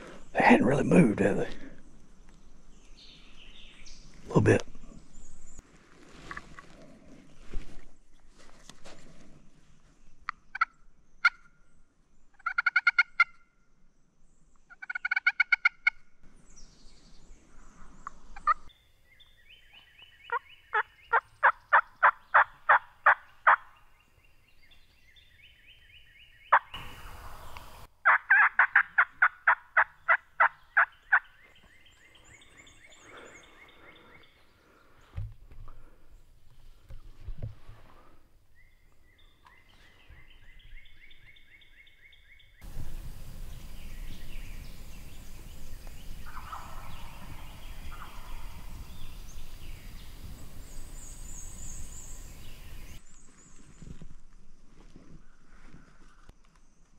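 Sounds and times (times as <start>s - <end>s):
rustling noise: 5.6s - 10.0s, 52.9s - 56.9s
turkeys gobbling: 12.4s - 13.4s, 14.8s - 16.0s, 20.3s - 23.7s, 28.0s - 31.2s, 46.1s - 48.6s.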